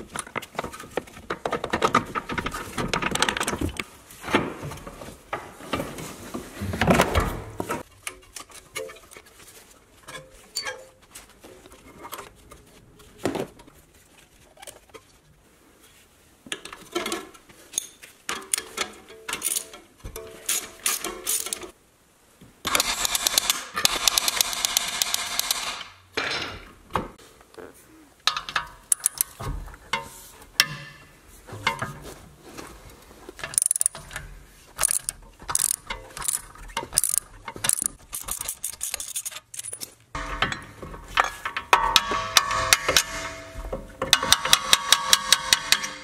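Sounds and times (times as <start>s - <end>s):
metallic clicks and knocks of wrenches: 16.5s - 21.7s, 28.2s - 32.0s, 33.4s - 46.0s
ratchet wrench clicking: 33.6s - 34.0s, 34.8s - 36.4s, 37.0s - 39.8s.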